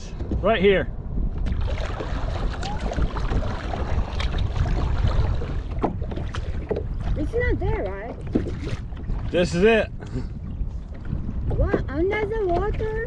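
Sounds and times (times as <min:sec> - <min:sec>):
water lapping against hull: 0:00.0 - 0:13.0
wind buffeting microphone: 0:00.0 - 0:13.0
water slaps: 0:01.4 - 0:09.4.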